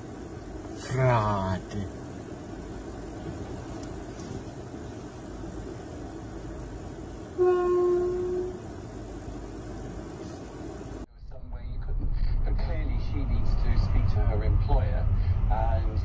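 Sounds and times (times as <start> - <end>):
vehicle engine rumble: 0.0 - 16.0
locomotive horn blast: 7.3 - 8.7.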